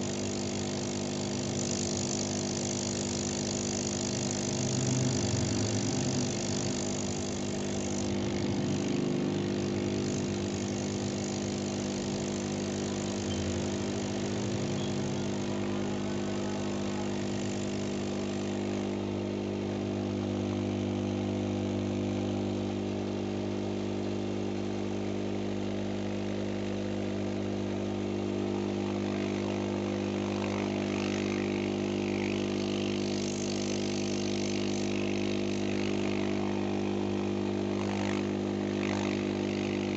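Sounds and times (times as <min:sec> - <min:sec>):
hiss of air: 0:00.0 - 0:19.1, 0:30.4 - 0:37.0
blower humming: 0:00.0 - 0:39.9.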